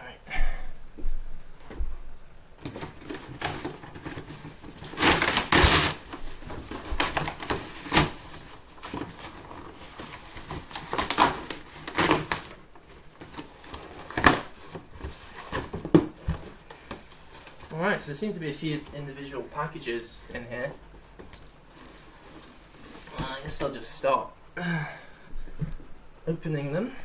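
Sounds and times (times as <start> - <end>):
cardboard box tearing and rustling: 2.6 - 16.6.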